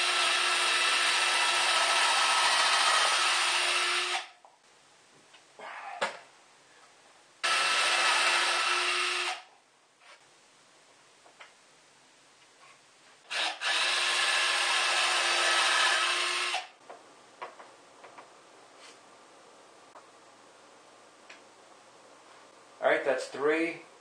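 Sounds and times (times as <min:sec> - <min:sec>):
cordless drill whining: 0:00.0 - 0:04.3, 0:07.4 - 0:09.5, 0:13.3 - 0:16.7.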